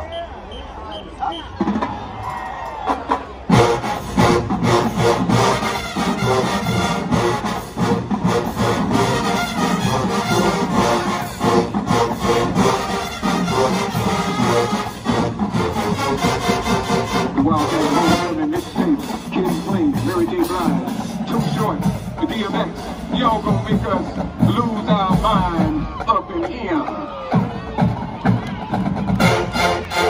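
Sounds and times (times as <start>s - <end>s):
driving drumline: 0.9s - 30.0s
loud brass: 3.5s - 18.8s, 29.2s - 30.0s.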